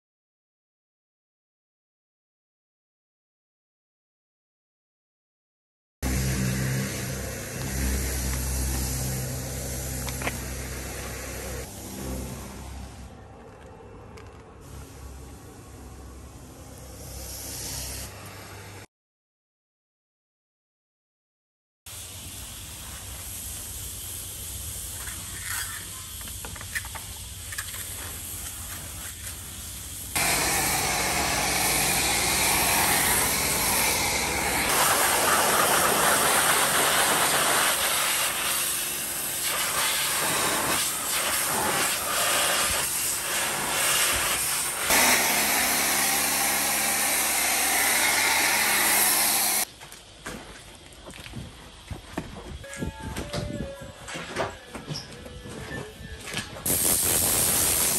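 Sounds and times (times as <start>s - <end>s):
high-pressure water spray: 6.1s - 12.6s, 21.9s - 49.7s, 56.7s - 57.9s.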